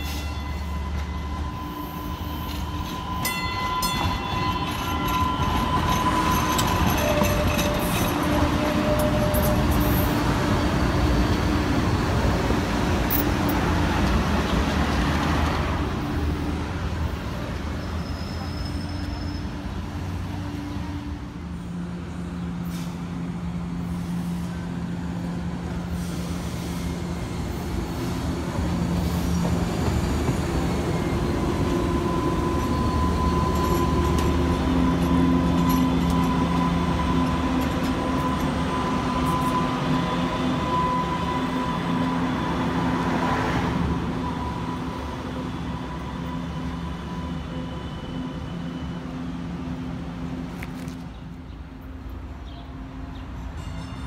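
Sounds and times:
trolley running noise: 0:00.0 - 0:11.2, 0:28.6 - 0:42.7
trolley motor hum and whine: 0:00.0 - 0:14.8, 0:23.2 - 0:53.2.

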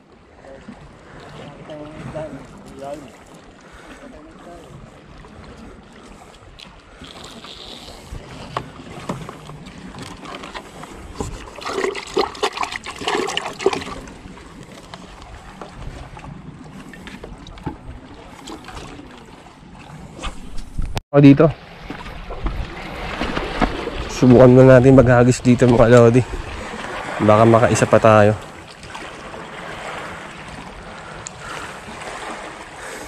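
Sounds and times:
sea noise: 0:00.0 - 0:33.0
wind: 0:00.0 - 0:33.0
water splashing in bucket: 0:11.3 - 0:14.2, 0:21.7 - 0:27.2.

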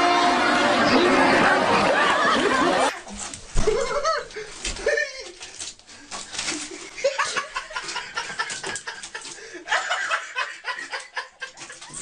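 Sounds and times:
person laughing: 0:03.6 - 0:05.4, 0:06.6 - 0:12.0.

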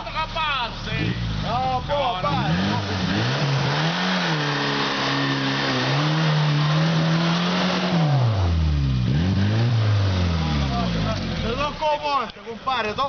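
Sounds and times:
off-road vehicle engine revving: 0:00.0 - 0:12.2.

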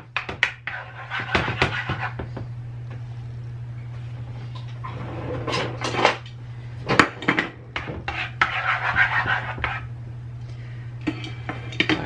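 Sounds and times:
utensil scraping frying pan: 0:00.5 - 0:02.2, 0:07.0 - 0:09.9
low hum: 0:02.1 - 0:12.0.

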